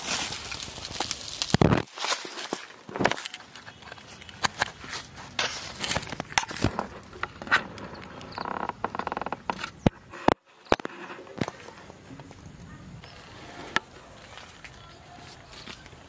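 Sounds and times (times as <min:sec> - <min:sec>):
rattling scrapes on dry leaves: 0:00.0 - 0:08.7, 0:13.0 - 0:15.9.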